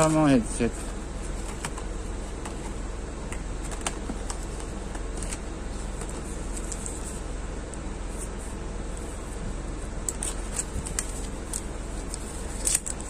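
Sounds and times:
plastic and cardboard rustling: 0:00.0 - 0:07.3, 0:10.1 - 0:13.0
low background hum: 0:00.0 - 0:13.0.

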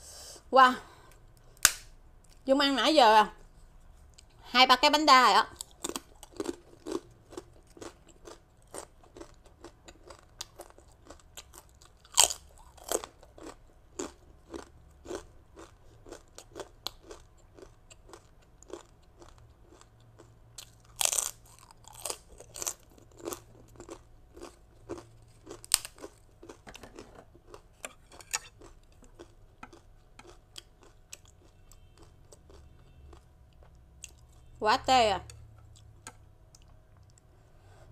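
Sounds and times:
crunching rice cracker: 0:05.6 - 0:34.2.

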